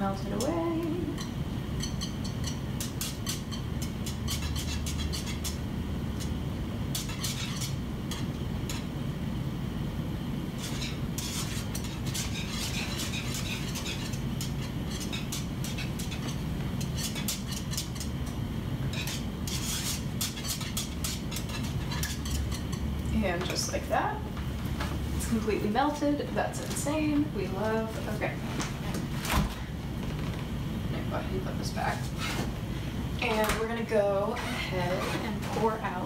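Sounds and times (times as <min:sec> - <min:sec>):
steady low hum: 0:00.0 - 0:36.0
whisk scraping a saucepan: 0:01.0 - 0:09.0, 0:10.5 - 0:23.9, 0:34.3 - 0:36.0.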